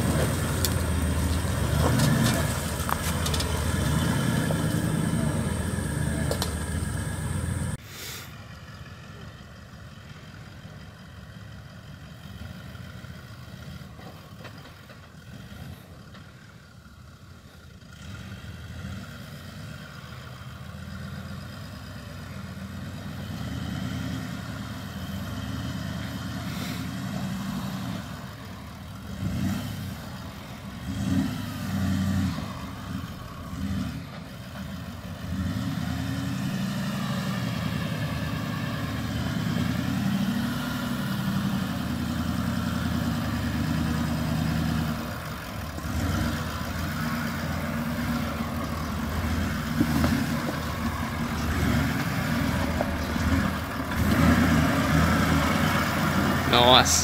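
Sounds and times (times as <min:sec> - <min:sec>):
engine throttle blips: 0:00.0 - 0:07.8
diesel engine crawling at low revs: 0:00.0 - 0:57.0.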